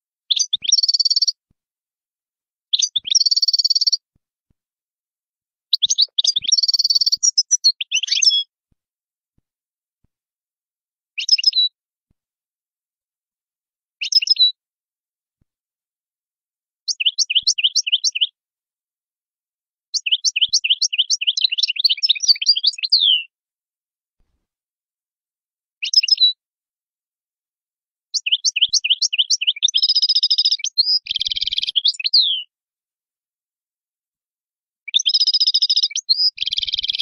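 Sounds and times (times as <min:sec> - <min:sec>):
goldfinch singing: 0:00.3 - 0:01.4, 0:02.7 - 0:04.0, 0:05.7 - 0:08.5, 0:11.2 - 0:11.7, 0:14.0 - 0:14.6, 0:16.9 - 0:18.4, 0:20.0 - 0:23.3, 0:25.8 - 0:26.4, 0:28.2 - 0:32.5, 0:34.9 - 0:37.0.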